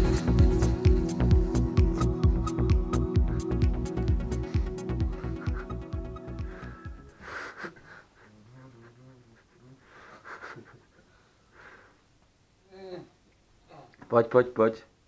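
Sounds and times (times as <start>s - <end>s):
background music: 0.0s - 7.4s
person breathing: 0.5s - 12.1s.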